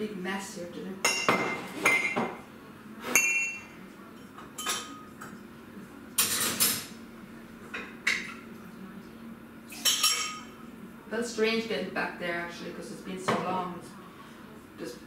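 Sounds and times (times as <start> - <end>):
crockery clinking: 1.0 - 2.4, 3.1 - 5.4, 9.8 - 10.6.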